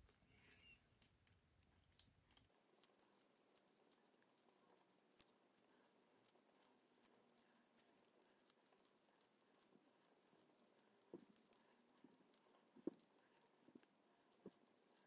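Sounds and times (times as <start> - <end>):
knitting needles clicking: 0.0 - 15.0.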